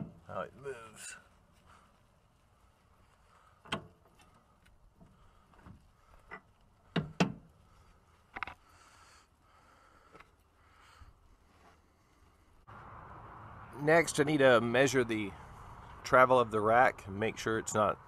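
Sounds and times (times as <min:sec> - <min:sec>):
sharp knocks and clunks: 0:00.0 - 0:00.3, 0:03.6 - 0:04.2, 0:05.0 - 0:07.5
faint rustle: 0:00.0 - 0:12.9.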